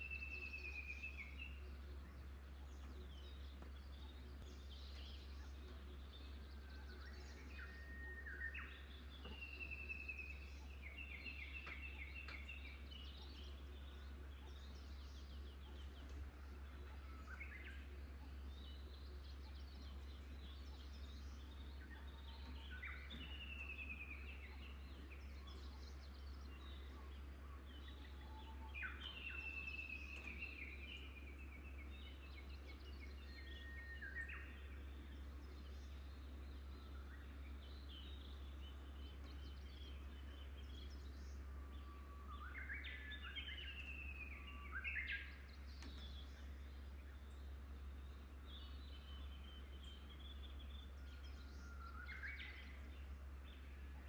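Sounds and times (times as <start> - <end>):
songbirds singing: 0.0 - 54.0
steady low hum: 0.0 - 54.0.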